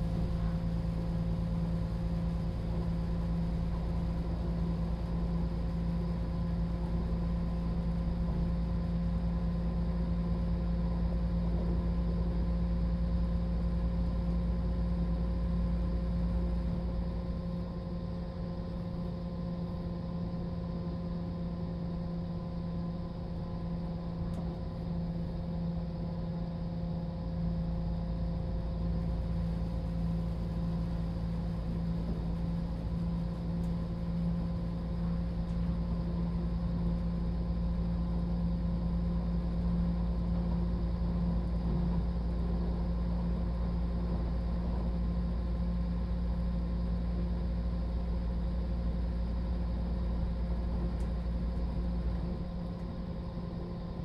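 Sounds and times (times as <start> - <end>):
diesel engine hum: 0.0 - 12.3.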